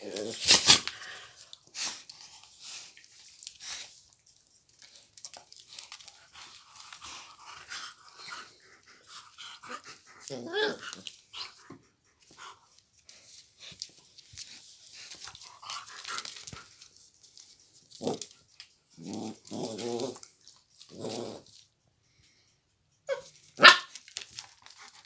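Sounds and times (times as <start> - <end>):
dog growling: 0.0 - 1.2, 7.2 - 11.6, 18.0 - 18.3, 18.9 - 20.3, 20.9 - 21.6
dog barking: 23.1 - 23.9.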